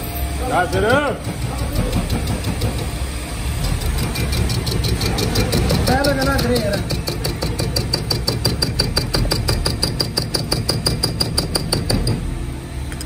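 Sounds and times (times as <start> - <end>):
low machine hum: 0.0 - 13.0
machine ticking rapidly: 3.6 - 12.2.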